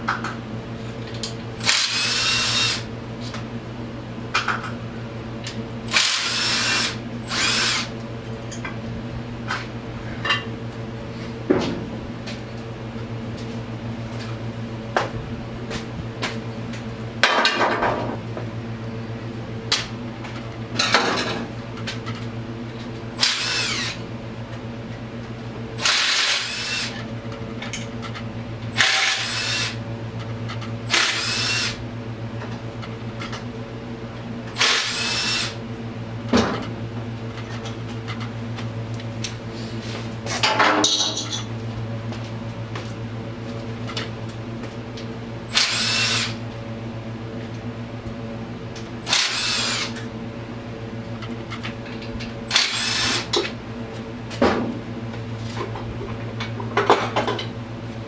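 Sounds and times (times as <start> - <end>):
steady low hum: 0.0 - 58.0
power tool whirring: 1.6 - 2.9, 5.9 - 7.9, 23.2 - 24.0, 25.8 - 27.0, 28.8 - 29.8, 30.9 - 31.8, 34.5 - 35.6, 45.5 - 46.4, 49.0 - 50.0, 52.5 - 53.4.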